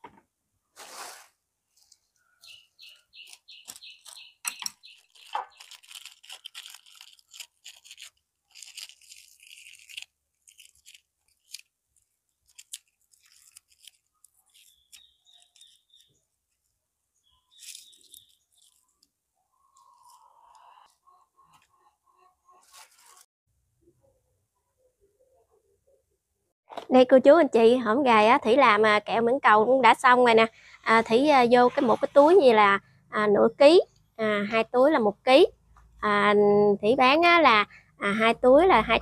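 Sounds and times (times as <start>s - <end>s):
bird chirping: 2.0s - 6.0s, 14.1s - 16.4s, 17.1s - 22.8s
plastic wrappers crinkling: 3.2s - 16.7s, 17.5s - 19.1s.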